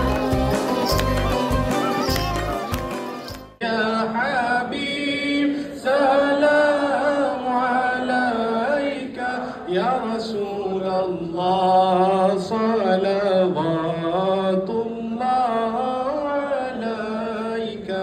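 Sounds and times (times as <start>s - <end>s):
man singing devotional chant: 3.6s - 18.0s.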